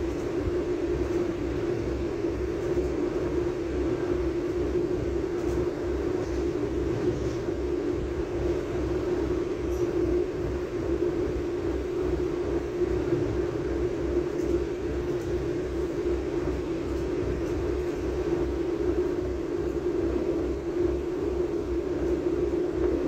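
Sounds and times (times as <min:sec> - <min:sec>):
low repeating pulse: 0:00.0 - 0:23.0
train running drone: 0:00.0 - 0:23.0.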